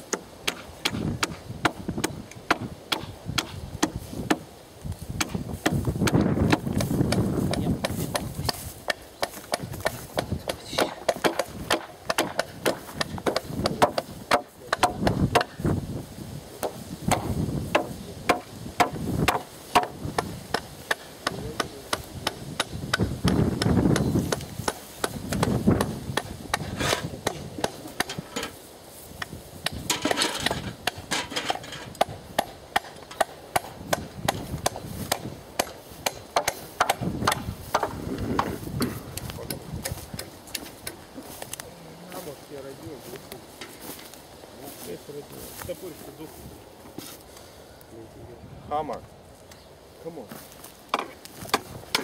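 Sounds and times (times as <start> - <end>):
dry brush rustling: 0.0 - 48.2, 48.8 - 52.0
hammer hitting nails into wood: 5.2 - 15.6, 16.6 - 28.5, 29.6 - 38.5.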